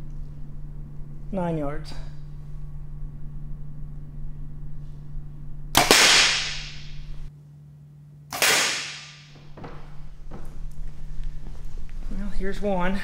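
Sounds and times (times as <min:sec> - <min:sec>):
arrow striking steel plate: 0:05.8 - 0:07.1, 0:08.3 - 0:09.3
loud crack with long echo: 0:05.8 - 0:07.1, 0:08.3 - 0:09.4.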